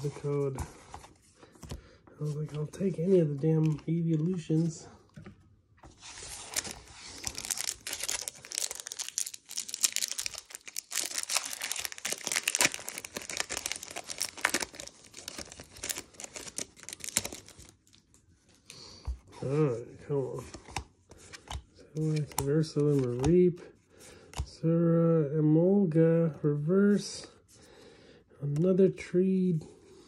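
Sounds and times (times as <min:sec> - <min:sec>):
foil wrapper crinkling and tearing: 0:06.4 - 0:18.0.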